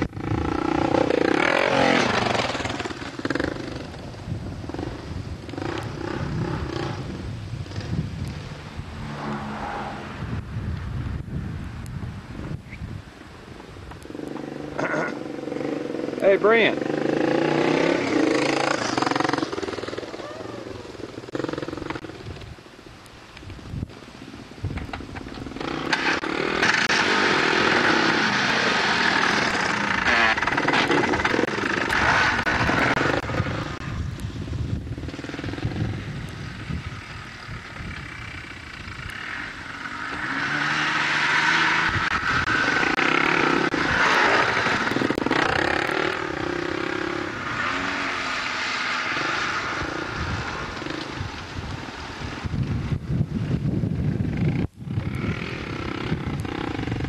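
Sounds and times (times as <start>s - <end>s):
small buggy engine revving: 0.0s - 8.4s, 14.0s - 22.4s, 25.4s - 34.1s, 34.8s - 51.6s, 54.0s - 57.0s.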